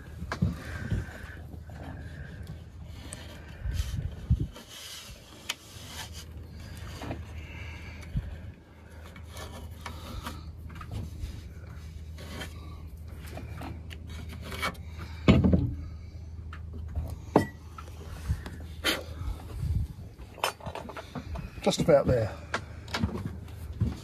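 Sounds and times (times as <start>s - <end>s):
scraping and rubbing on wood: 0.4s - 7.6s, 8.9s - 15.5s.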